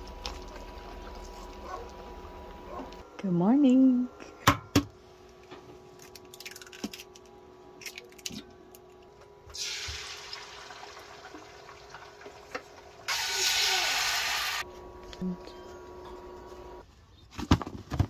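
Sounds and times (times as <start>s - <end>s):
eggs sizzling in a skillet: 9.6s - 14.7s.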